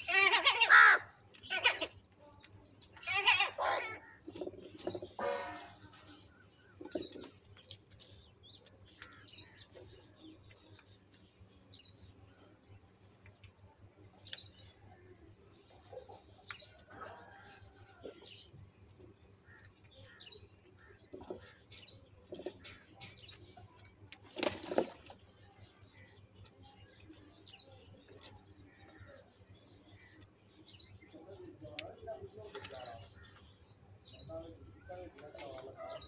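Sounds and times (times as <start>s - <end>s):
crows pecking at bowls: 0.0s - 11.5s, 16.0s - 25.3s.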